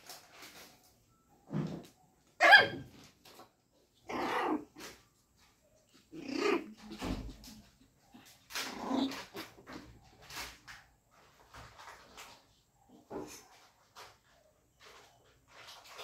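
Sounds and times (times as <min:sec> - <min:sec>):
puppies growling and yapping: 0:04.0 - 0:05.1, 0:06.0 - 0:09.9.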